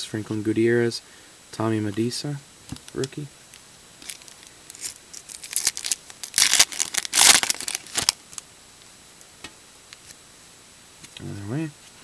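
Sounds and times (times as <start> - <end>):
wrapper tearing and crinkling: 4.0 - 8.4.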